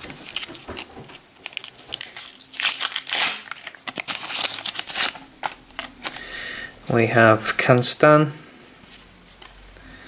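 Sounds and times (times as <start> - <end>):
sticker packet tearing open: 0.0 - 6.2
wrapper crinkling: 0.0 - 6.2.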